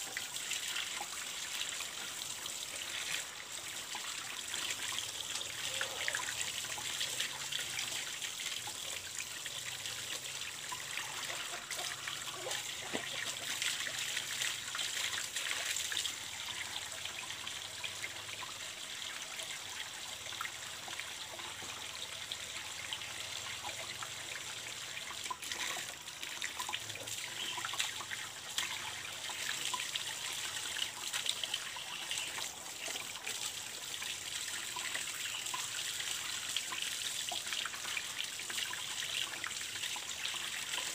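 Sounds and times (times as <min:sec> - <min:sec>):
water running from a pipe: 0:00.0 - 0:40.9.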